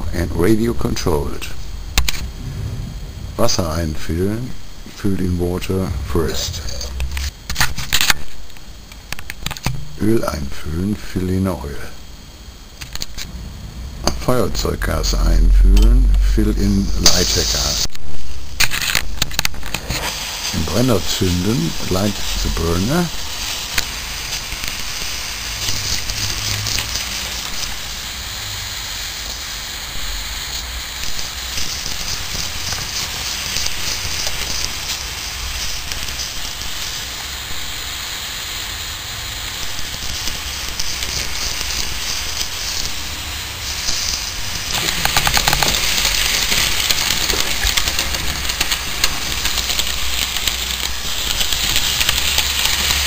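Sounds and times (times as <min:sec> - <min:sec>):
gas burner hissing: 0:00.0 - 0:53.0
small steam engine running: 0:20.5 - 0:53.0.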